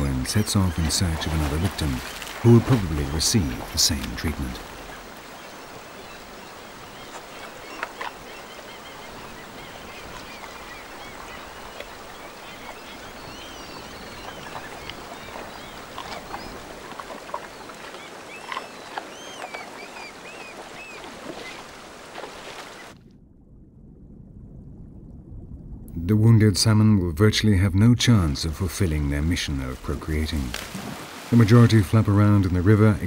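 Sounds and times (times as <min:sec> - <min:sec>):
high bird calls: 0:00.0 - 0:22.9
river water running: 0:00.0 - 0:23.0, 0:27.8 - 0:33.0
water splashing: 0:00.0 - 0:25.8, 0:27.8 - 0:33.0
low rumble: 0:23.0 - 0:28.8.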